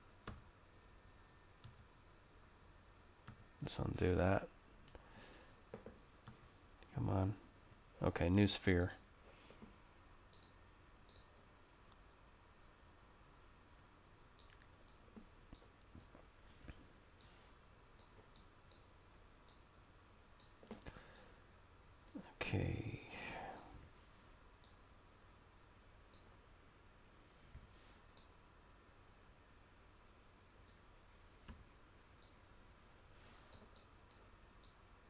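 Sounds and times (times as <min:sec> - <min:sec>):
computer mouse clicks: 0:10.3 - 0:11.3, 0:14.4 - 0:17.4, 0:18.0 - 0:19.6, 0:20.4 - 0:21.3, 0:28.1 - 0:28.4, 0:30.5 - 0:30.8, 0:31.4 - 0:32.4, 0:33.3 - 0:34.8.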